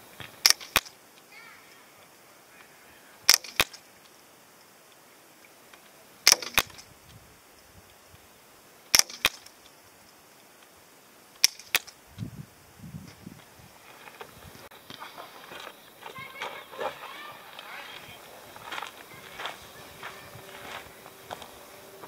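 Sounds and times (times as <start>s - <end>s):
air rifle shots: 0.4s - 1.0s, 3.3s - 3.8s, 6.2s - 6.8s, 8.9s - 9.5s
sharp double crack: 0.4s - 1.0s, 3.2s - 3.8s, 6.2s - 6.9s, 8.9s - 9.5s, 11.4s - 12.0s.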